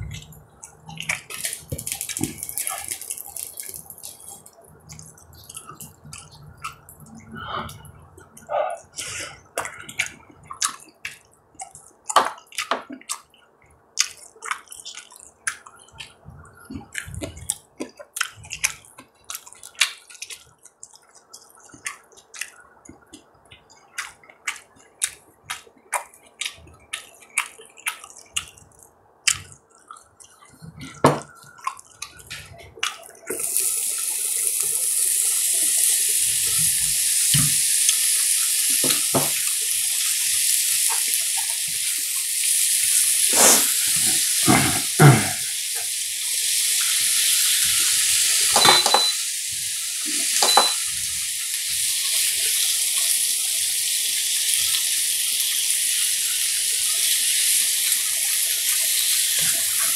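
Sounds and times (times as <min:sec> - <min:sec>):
chewing clicks and smacks: 0:00.0 - 0:08.5, 0:09.5 - 0:34.8
beef sizzling on a griddle: 0:33.4 - 0:59.9.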